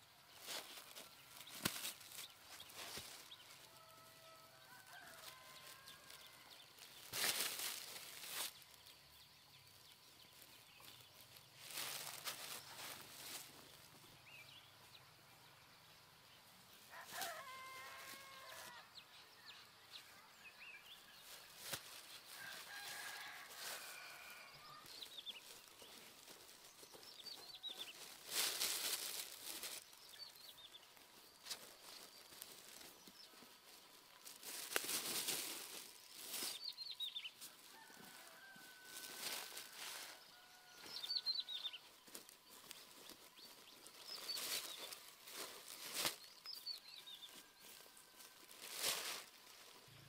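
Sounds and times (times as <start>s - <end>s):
hands scraping dry soil: 0.0s - 14.6s, 20.9s - 50.0s
small birds chirping: 0.0s - 50.0s
rooster crowing: 3.6s - 6.6s, 16.9s - 18.9s, 22.3s - 24.8s, 37.6s - 41.7s
chickens calling: 10.8s - 14.1s, 30.9s - 46.2s.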